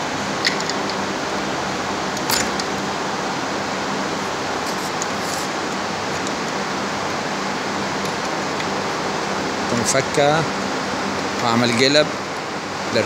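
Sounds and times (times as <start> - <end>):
steady background hiss: 0.0 - 13.0
sharp metallic click: 2.2 - 2.8.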